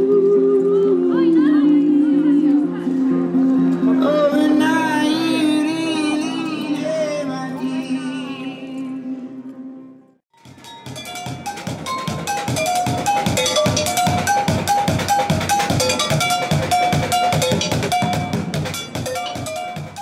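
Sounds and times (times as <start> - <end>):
metallic strikes on pots: 10.4 - 20.0.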